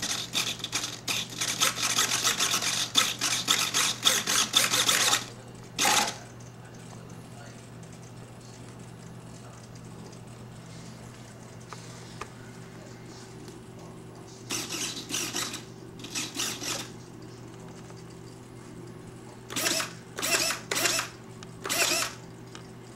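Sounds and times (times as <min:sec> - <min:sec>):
servo motors whirring: 0:00.0 - 0:06.2, 0:14.5 - 0:16.9, 0:19.5 - 0:22.2
steady low hum: 0:00.0 - 0:22.9.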